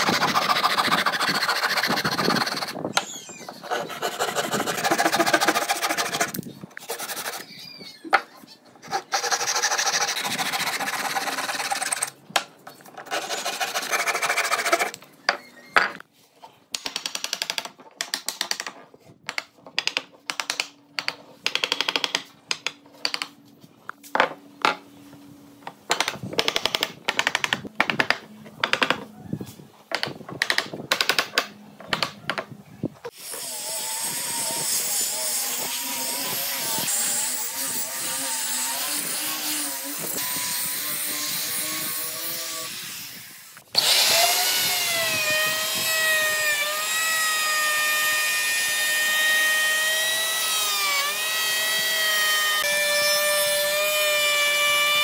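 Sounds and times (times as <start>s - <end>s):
hand saw cutting wood: 0.0s - 2.8s, 3.5s - 7.5s, 8.8s - 12.2s, 13.0s - 15.0s, 33.1s - 55.0s
angle grinder sanding: 0.0s - 7.6s, 8.8s - 12.2s, 13.0s - 15.0s.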